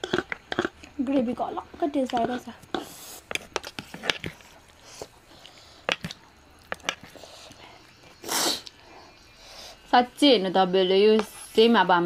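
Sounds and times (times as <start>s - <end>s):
short breathy hiss: 8.2s - 8.8s.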